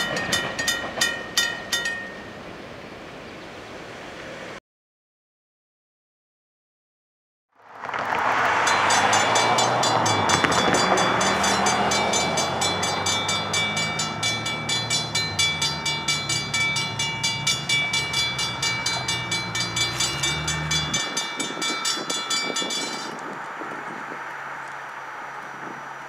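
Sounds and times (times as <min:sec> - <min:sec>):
railroad crossing bells ringing: 0:00.0 - 0:02.8, 0:08.2 - 0:24.8.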